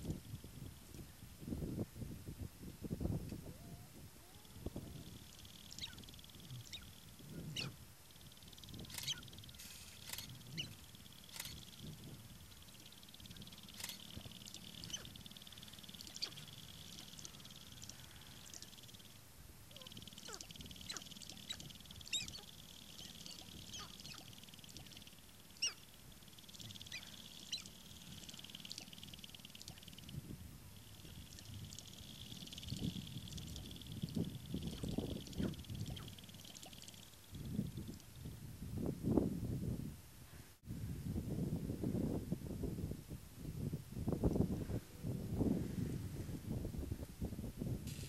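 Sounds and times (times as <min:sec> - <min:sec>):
faint steady buzz: 0:00.0 - 0:48.0
grouse clucking and cackling: 0:04.6 - 0:07.8, 0:12.8 - 0:19.0, 0:19.7 - 0:30.2, 0:30.9 - 0:37.1.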